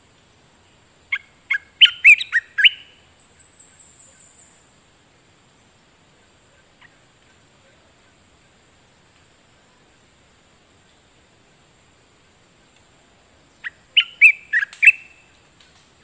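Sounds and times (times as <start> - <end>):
bird singing clear gliding notes: 1.1 - 4.7, 13.5 - 15.4.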